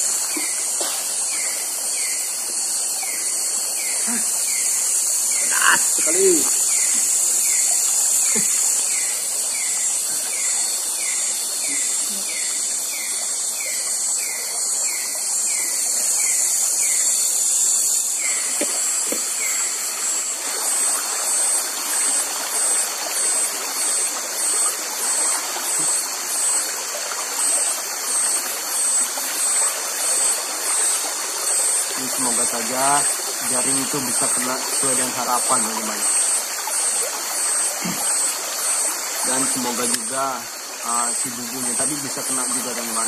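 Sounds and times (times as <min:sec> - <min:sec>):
crickets and insects shrilling: 0:00.0 - 0:43.0
river water rushing: 0:17.8 - 0:43.0.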